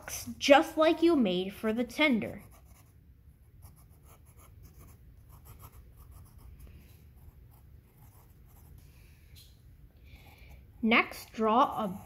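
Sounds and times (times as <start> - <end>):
pencil scratching on paper: 2.2 - 3.0, 3.6 - 8.8, 10.2 - 12.0.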